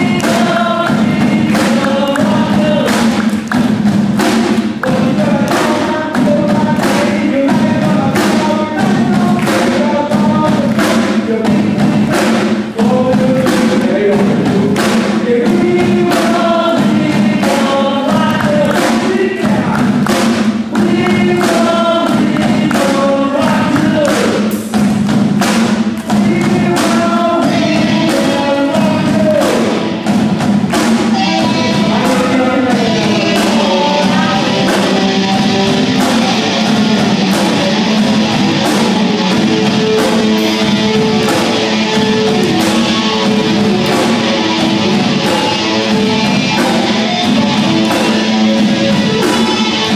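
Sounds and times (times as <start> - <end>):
drums: 0.0 - 49.9
guitars: 0.0 - 49.9
woman singing: 31.1 - 36.6.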